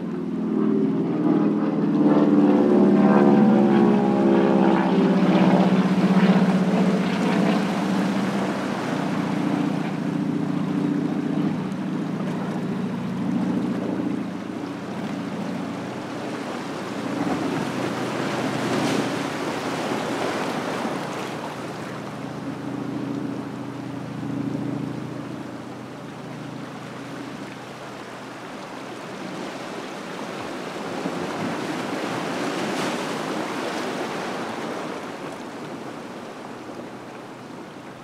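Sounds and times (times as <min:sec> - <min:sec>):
low engine drone: 0:00.0 - 0:28.8
ocean waves among rocks: 0:00.0 - 0:38.0
wave splash: 0:00.0 - 0:38.0.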